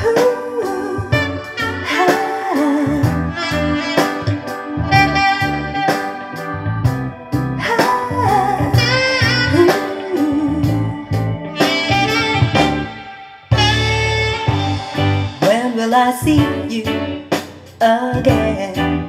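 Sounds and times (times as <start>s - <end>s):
soul-pop music over loudspeakers: 0.0s - 19.0s.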